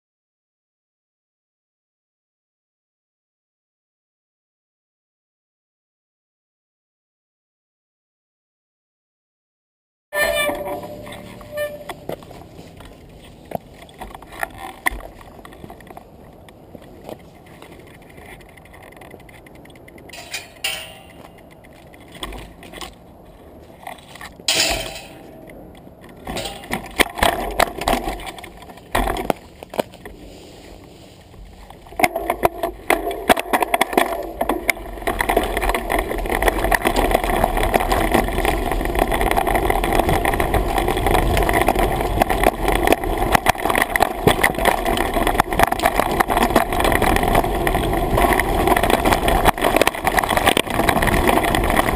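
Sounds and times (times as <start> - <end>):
tyre rumble on dirt: 10.2 - 18.6, 26.1 - 51.9
bike knocks and rattles: 10.2 - 51.9.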